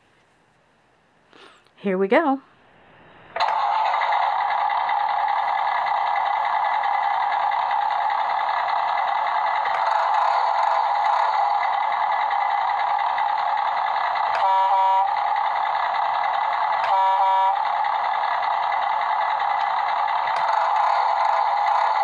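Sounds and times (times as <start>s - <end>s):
toy speaker truck engine sound: 3.4s - 22.0s
short horn honks: 14.4s - 15.1s, 16.9s - 17.6s.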